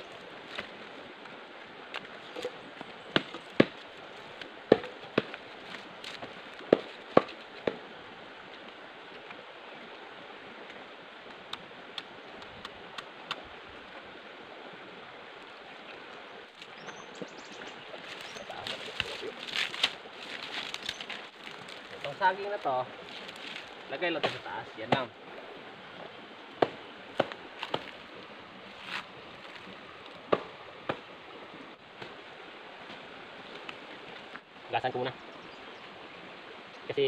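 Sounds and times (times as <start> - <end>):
dry fronds rustling and crackling: 0.0 - 7.9, 15.4 - 31.2
outdoor hiss: 0.0 - 37.0
twigs snapping: 18.1 - 25.0, 26.6 - 28.1.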